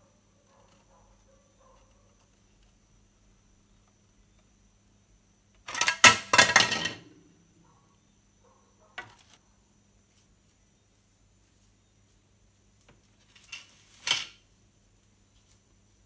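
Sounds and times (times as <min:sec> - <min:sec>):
plastic parts clattering: 0:05.6 - 0:07.1.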